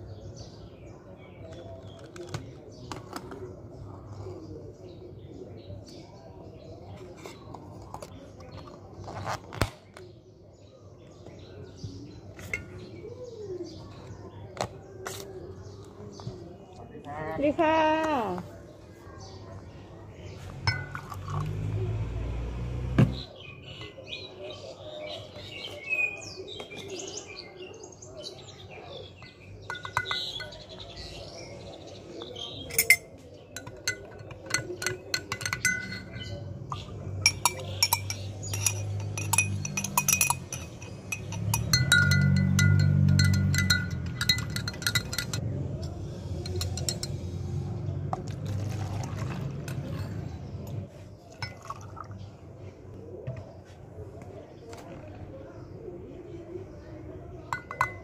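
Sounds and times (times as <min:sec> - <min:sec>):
small birds chirping: 0:00.0 - 0:22.0, 0:23.1 - 0:58.0
spoon clinking against glass jug: 0:20.6 - 0:21.5, 0:29.2 - 0:30.9, 0:32.6 - 0:47.3, 0:51.3 - 0:52.1, 0:57.5 - 0:58.0
liquid pouring into plastic cup: 0:48.1 - 0:49.8, 0:51.4 - 0:52.2.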